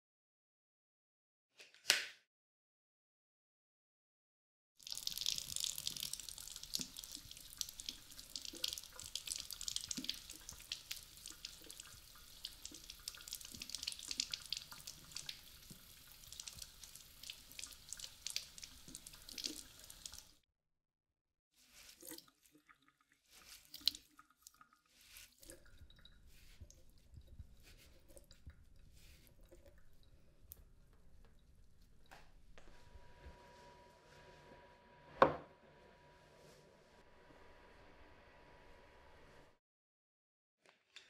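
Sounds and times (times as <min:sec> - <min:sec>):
tap water running and splashing: 0:04.8 - 0:20.4, 0:21.8 - 0:32.7.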